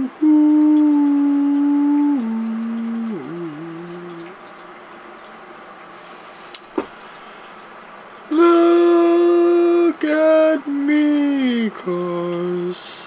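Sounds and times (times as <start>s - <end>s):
man singing long held notes: 0.0s - 4.4s, 8.3s - 13.0s
faint hiss: 0.0s - 13.0s.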